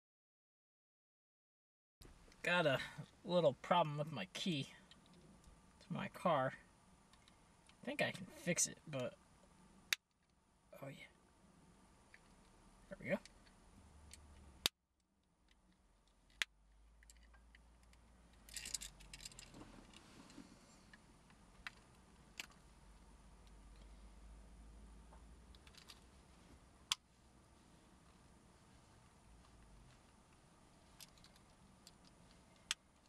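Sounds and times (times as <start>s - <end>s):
car key clicking and rattling: 17.0s - 20.0s.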